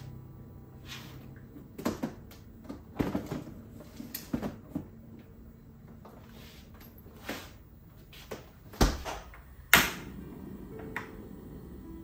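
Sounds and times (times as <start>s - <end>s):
plastic containers knocking and clattering: 1.8s - 3.6s, 4.2s - 4.9s.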